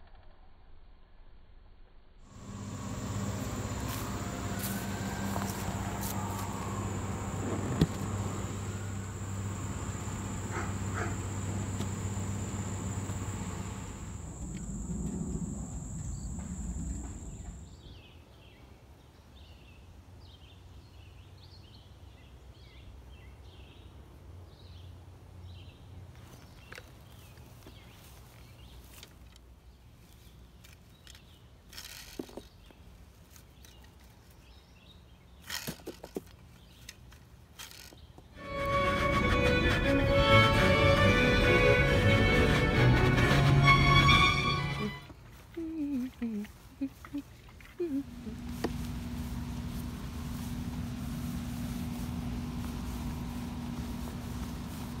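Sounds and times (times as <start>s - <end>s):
low hum: 2.0s - 18.0s, 47.0s - 55.0s
rake scraping grass: 2.3s - 17.8s, 47.9s - 55.0s
steady high whine: 2.3s - 18.0s, 47.8s - 55.0s.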